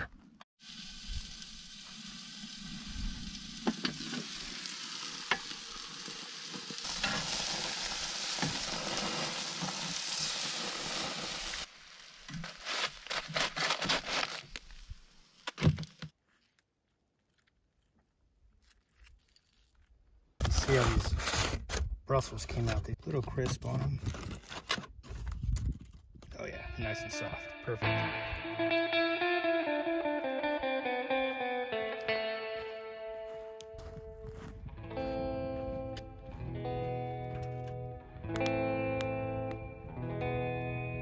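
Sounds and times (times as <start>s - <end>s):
burger patties sizzling: 0.6s - 13.1s.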